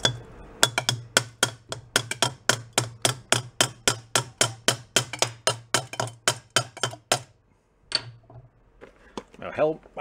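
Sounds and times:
hammer tapping on metal: 0:00.0 - 0:07.3.

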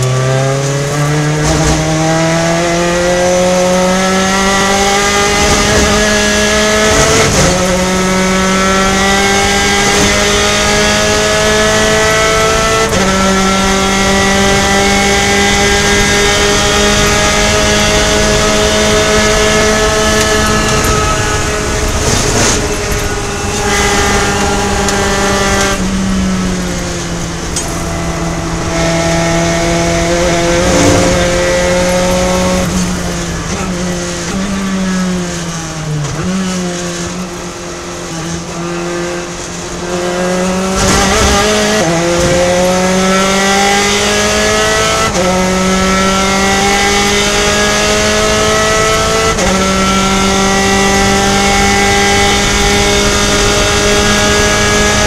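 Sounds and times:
race car engine shifting gears: 0:00.0 - 0:55.0.

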